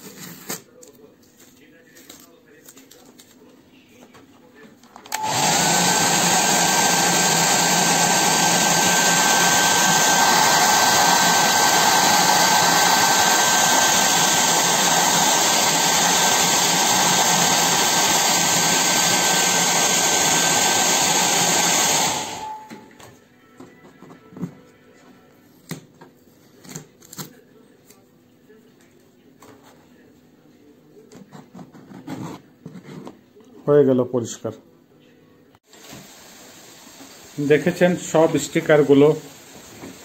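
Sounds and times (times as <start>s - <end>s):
hair dryer running: 5.1s - 22.8s.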